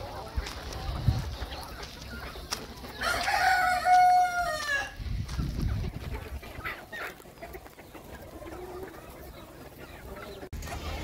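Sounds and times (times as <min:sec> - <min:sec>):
hens clucking: 0:00.0 - 0:11.0
rooster crowing: 0:03.0 - 0:05.0.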